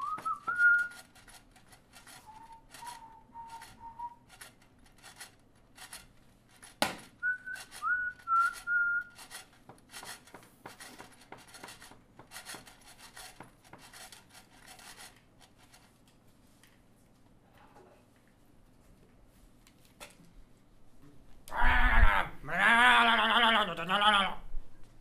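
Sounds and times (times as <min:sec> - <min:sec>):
whistled phrase: 0:00.0 - 0:01.0, 0:02.2 - 0:04.2, 0:07.2 - 0:09.2.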